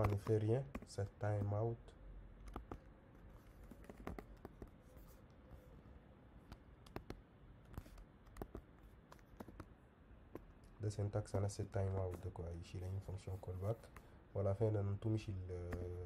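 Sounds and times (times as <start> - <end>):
computer keyboard typing: 0.0 - 1.5, 2.4 - 5.1, 6.5 - 9.8.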